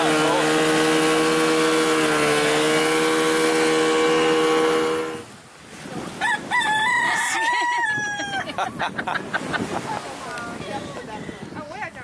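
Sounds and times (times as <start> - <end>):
outboard motor droning: 0.0 - 12.0
rooster crowing: 6.2 - 8.6.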